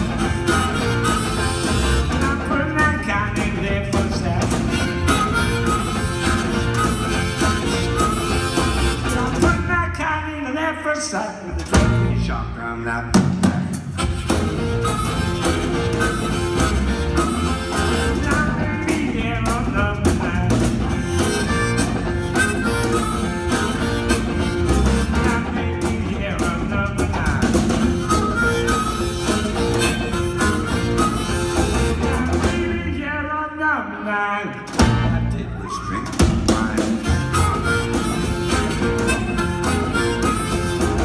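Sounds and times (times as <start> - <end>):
amplified harmonica solo: 0.0 - 2.8, 4.4 - 9.5, 13.9 - 18.6, 20.9 - 25.6, 27.7 - 32.6, 36.6 - 41.0
electric guitar: 0.0 - 9.6, 14.0 - 32.7, 34.7 - 41.0
electric bass: 0.0 - 9.9, 14.0 - 33.0, 34.8 - 35.6, 36.2 - 41.0
drum kit and cymbals: 0.0 - 10.0, 11.5 - 33.0, 34.7 - 41.0.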